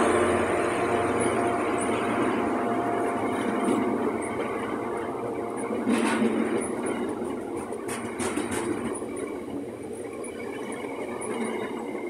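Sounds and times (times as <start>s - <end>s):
train wheels rumbling on rails: 0.0s - 12.0s
loud clatter: 5.8s - 9.1s.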